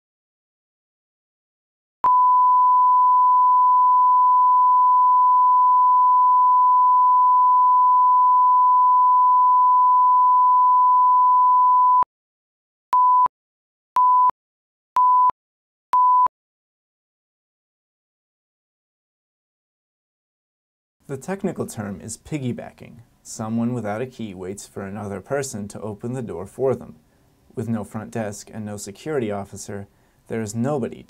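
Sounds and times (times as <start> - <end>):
short countdown beeps: 14.0 - 14.3, 15.0 - 15.4.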